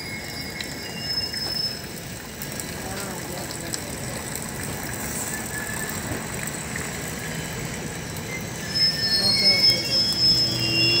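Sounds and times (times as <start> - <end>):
high-pitched brake squeals: 0.0 - 2.4, 5.1 - 6.2, 7.2 - 11.0
train wheels rumbling on rail: 0.0 - 11.0.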